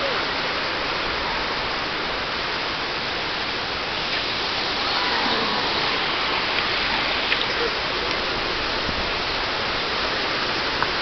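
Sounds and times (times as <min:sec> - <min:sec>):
water rushing: 0:00.0 - 0:11.0
dolphin splashing: 0:03.6 - 0:09.5.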